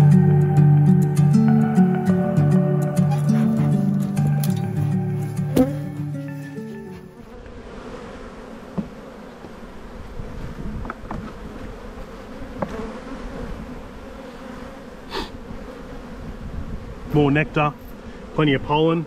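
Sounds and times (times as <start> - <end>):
honeybees humming: 0.0 - 19.0
light knocks on hive frame: 5.5 - 5.9, 8.6 - 9.6, 10.8 - 11.7, 12.6 - 12.9.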